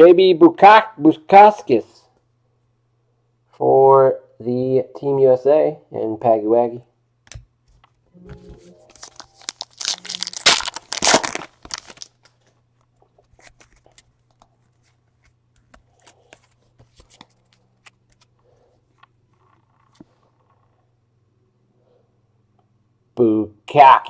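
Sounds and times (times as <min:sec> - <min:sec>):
plastic wrapping tearing and crinkling: 0:08.9 - 0:12.6
cards clicking and sliding: 0:13.2 - 0:18.3.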